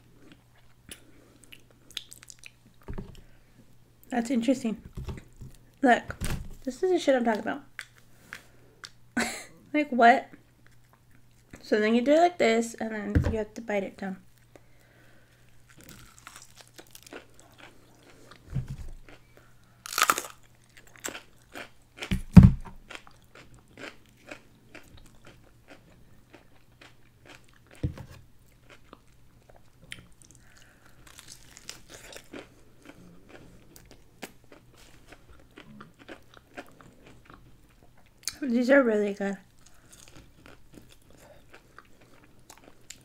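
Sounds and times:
crunching bites into fried chicken: 15.7s - 17.8s, 19.9s - 22.2s, 31.0s - 33.0s
chewing: 28.5s - 38.4s, 39.5s - 43.0s.

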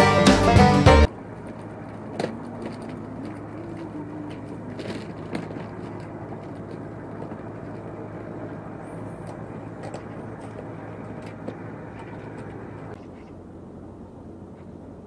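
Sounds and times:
faint clicks and knocks: 1.4s - 8.6s, 9.2s - 13.4s.

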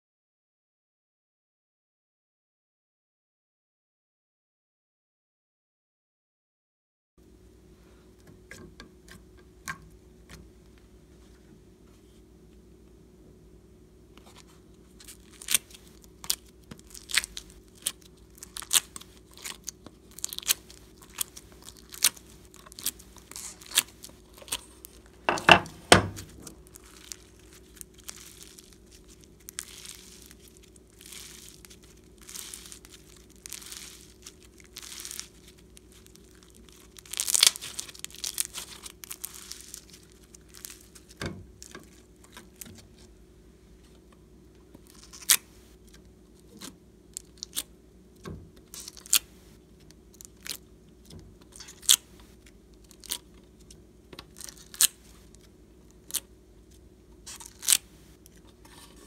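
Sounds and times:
slime stretching and crackling: 14.2s - 25.3s, 26.2s - 43.1s, 44.7s - 47.7s, 48.6s - 56.3s, 57.2s - 58.4s.

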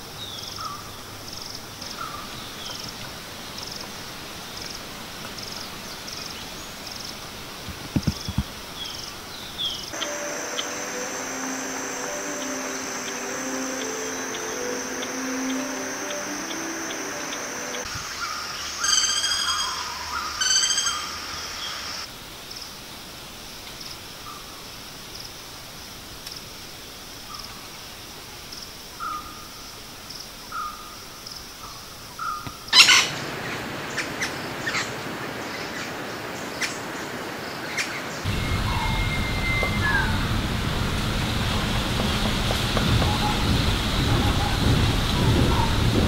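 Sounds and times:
woodpecker harsh rattling calls: 18.6s - 21.2s, 32.2s - 33.2s.

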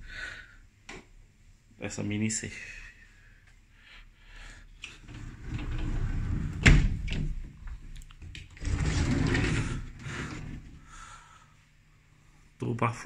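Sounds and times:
sliding wardrobe door rolling: 4.9s - 10.8s.

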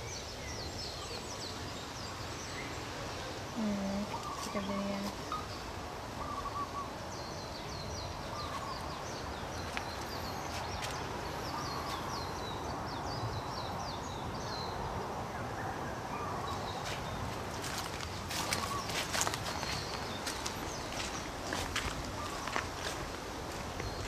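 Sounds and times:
steady background hiss: 0.0s - 24.0s
lower warbling bird call: 6.2s - 7.0s
footsteps on leaf litter: 16.8s - 24.0s.

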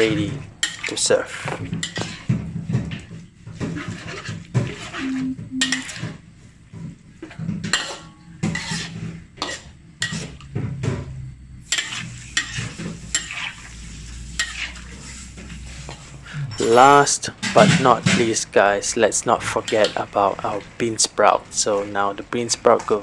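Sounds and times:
metal spatula scraping a wok: 1.8s - 2.3s, 7.7s - 10.4s, 11.6s - 16.7s.

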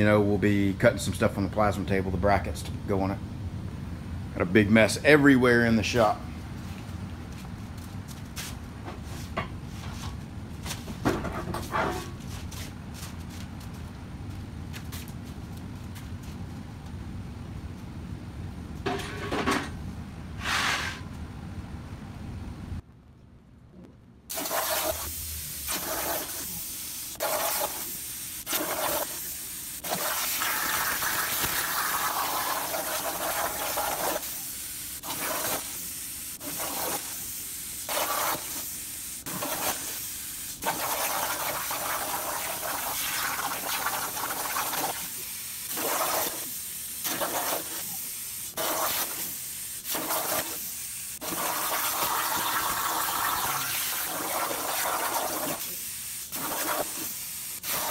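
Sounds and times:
plasma cutter hissing: 24.3s - 57.9s.

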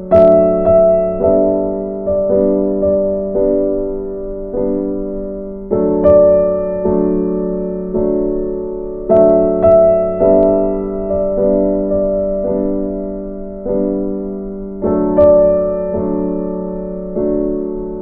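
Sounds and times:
slow piano chords: 0.0s - 18.0s.

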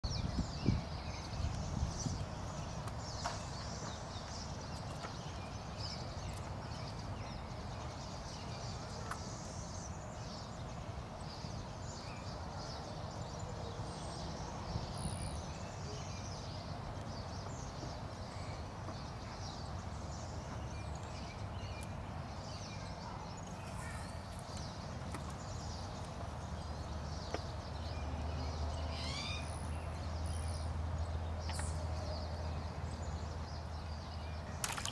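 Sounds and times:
wind rumble on microphone: 0.0s - 8.9s.

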